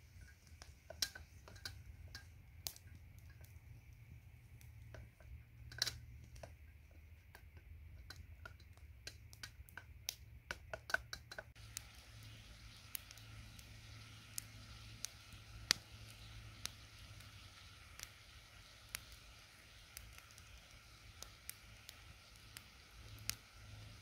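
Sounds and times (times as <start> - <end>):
sharp clicks and light knocks: 0.2 - 4.0, 4.6 - 11.6.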